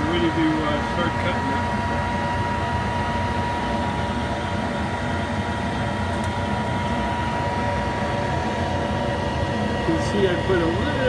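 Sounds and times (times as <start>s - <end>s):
metal lathe humming: 0.0s - 11.0s.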